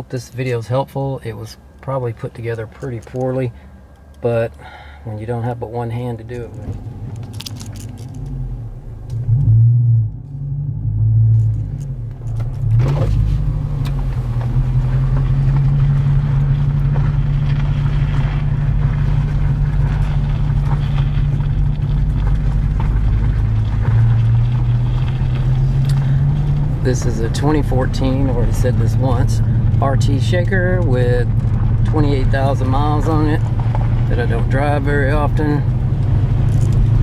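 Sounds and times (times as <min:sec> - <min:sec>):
car engine drone from inside: 0:00.0 - 0:37.0.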